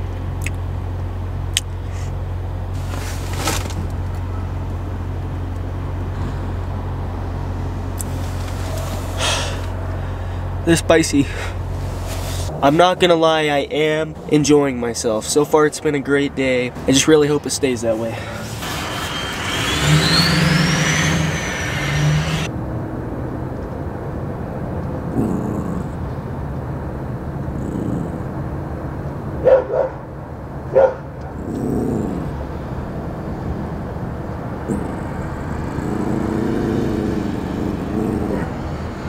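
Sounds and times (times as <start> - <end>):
small dog barking: 29.4 - 30.0, 30.7 - 31.1.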